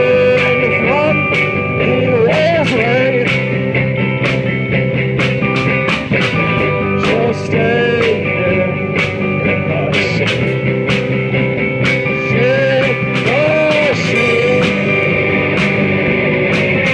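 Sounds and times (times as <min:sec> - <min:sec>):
man singing: 0:00.0 - 0:03.5, 0:06.9 - 0:10.8, 0:12.0 - 0:15.6
live rock band playing: 0:00.0 - 0:16.9.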